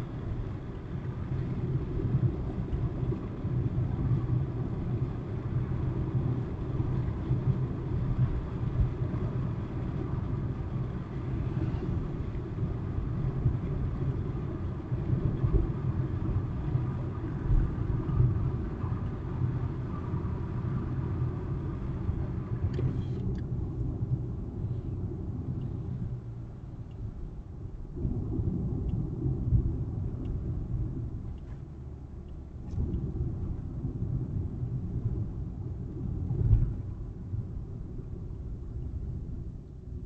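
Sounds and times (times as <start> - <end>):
car interior road noise: 0.0 - 40.0.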